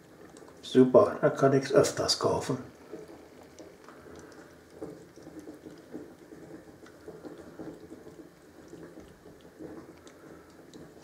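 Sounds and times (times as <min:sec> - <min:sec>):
cat eating wet smacking licking: 0:02.7 - 0:11.0.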